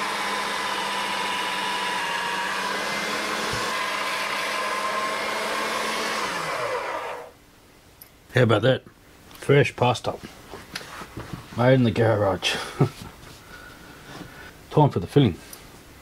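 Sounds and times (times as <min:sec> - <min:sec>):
pasta machine motor whining: 0:00.0 - 0:07.4.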